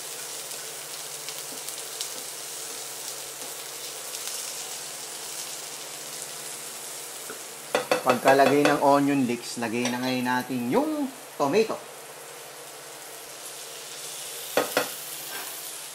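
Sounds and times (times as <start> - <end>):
vegetables sizzling in oil: 0.0 - 15.9.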